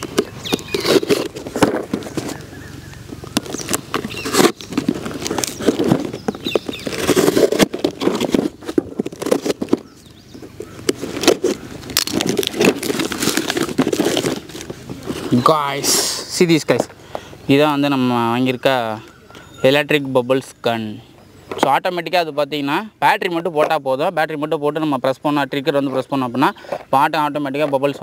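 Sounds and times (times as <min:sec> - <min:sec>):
knife cutting tape and cardboard: 0:00.0 - 0:02.4, 0:03.3 - 0:15.4
box flaps pulled open: 0:00.0 - 0:02.5, 0:03.3 - 0:15.4.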